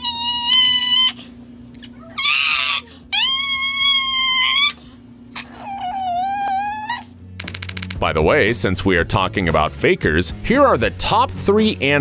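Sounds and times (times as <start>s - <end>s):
small dog screaming: 0.0s - 7.1s.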